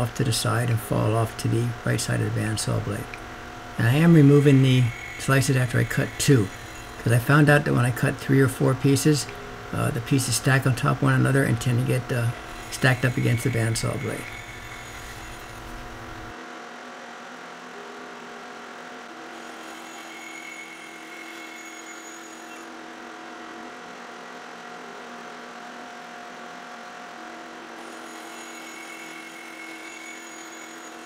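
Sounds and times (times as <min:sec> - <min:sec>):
band saw running: 0:00.0 - 0:16.4, 0:19.2 - 0:22.7, 0:27.8 - 0:31.0
high ringing tone of saw cut: 0:00.6 - 0:16.4, 0:19.2 - 0:22.7, 0:27.8 - 0:31.0.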